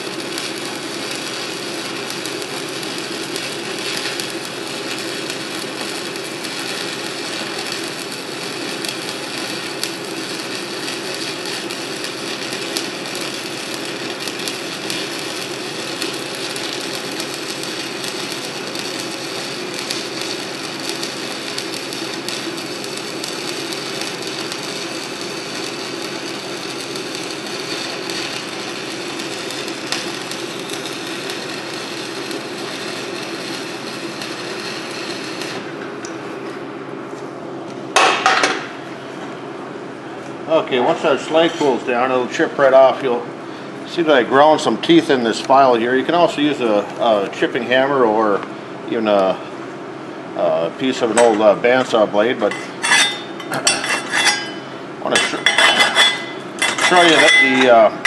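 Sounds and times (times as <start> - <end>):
welding arc crackling and popping: 0.0 - 36.2, 50.8 - 57.9.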